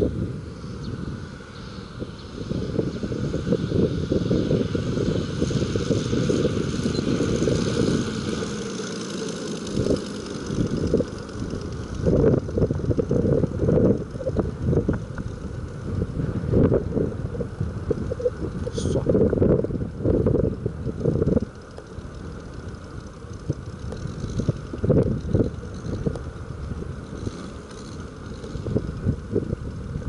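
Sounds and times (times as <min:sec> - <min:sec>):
model airplane radial engine running: 0:00.0 - 0:30.0
wind buffeting microphone: 0:00.0 - 0:30.0.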